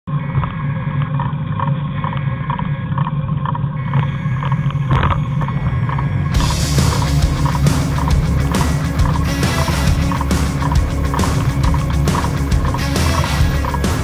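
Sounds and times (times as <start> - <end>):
low riding rumble: 2.8 - 14.0.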